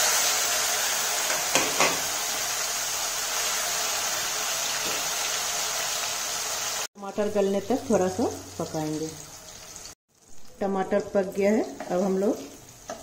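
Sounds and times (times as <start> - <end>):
tomato sizzling in oil: 0.0 - 13.0
spatula knocking on pan: 1.3 - 2.0.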